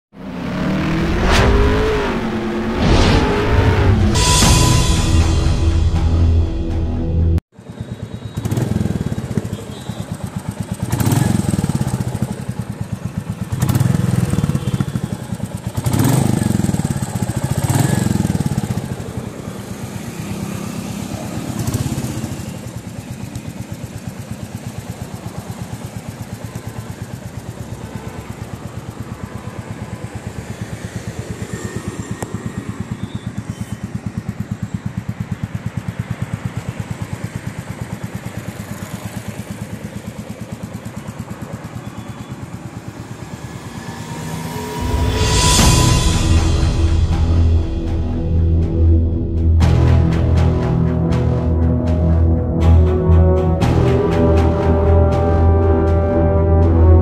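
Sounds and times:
motorcycle engine revving and idling: 0:07.6 - 0:46.4.

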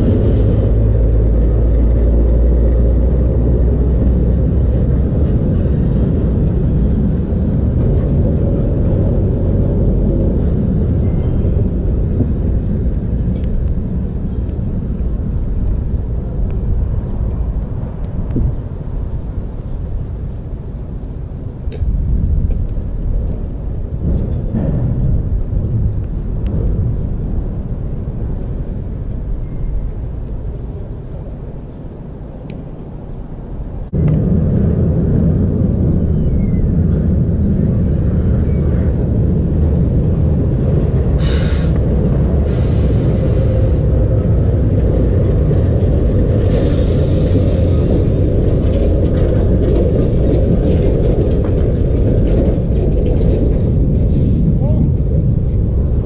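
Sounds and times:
wind rumble buffeting microphone: 0:00.0 - 0:56.0
hiss: 0:41.2 - 0:41.8, 0:42.4 - 0:43.8, 0:46.5 - 0:47.9, 0:54.1 - 0:54.5.

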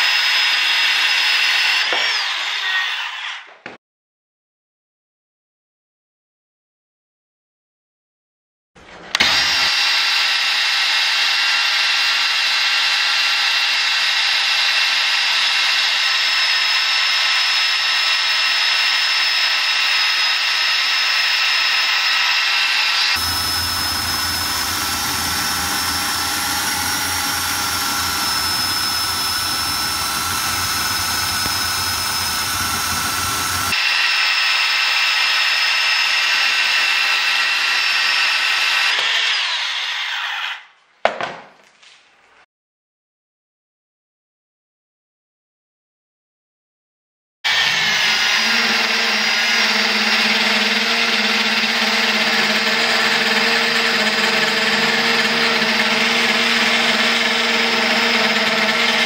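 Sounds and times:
bandsaw cutting steel: 0:00.0 - 0:03.5, 0:09.0 - 0:40.8, 0:47.5 - 0:59.0.

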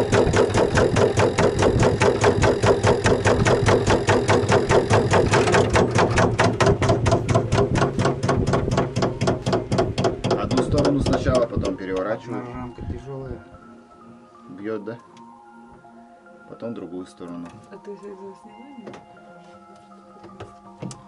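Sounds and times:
honey extractor clicking: 0:00.0 - 0:12.1.

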